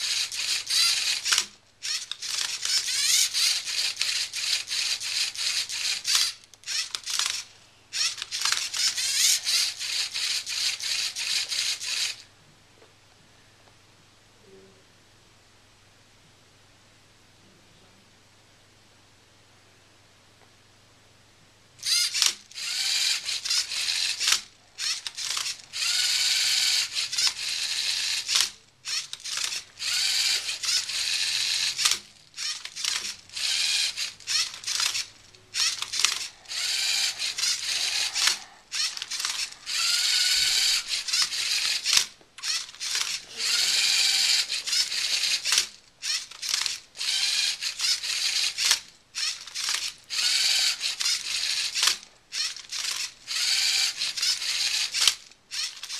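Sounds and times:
robot motors and gears whirring: 21.8s - 55.9s.

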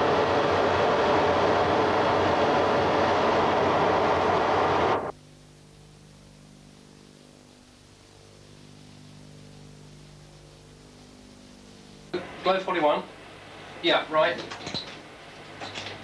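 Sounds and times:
aircraft engine and airflow rush: 0.0s - 5.1s
faint steady hum: 0.0s - 16.0s.

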